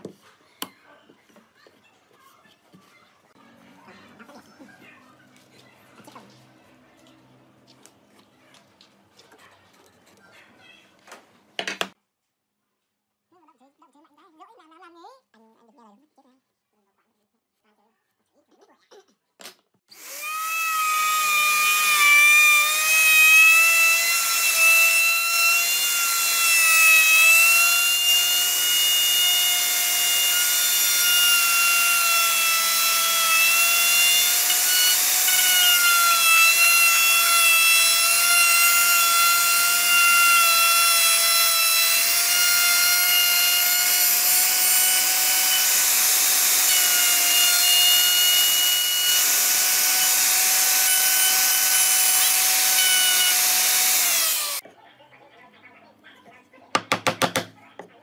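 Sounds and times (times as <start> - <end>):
electric router cutting wood: 19.9 - 54.6.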